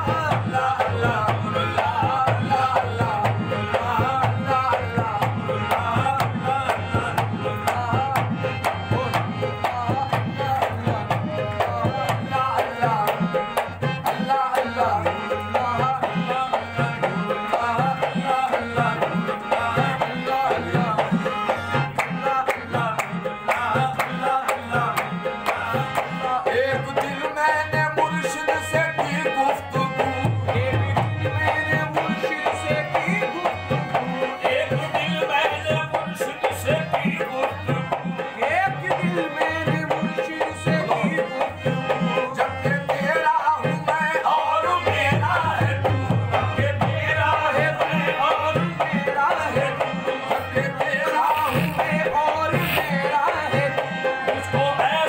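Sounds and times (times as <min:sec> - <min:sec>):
harmonium playing chords: 0:00.0 - 0:55.0
man singing: 0:00.0 - 0:55.0
hand drum beat: 0:50.7 - 0:53.7.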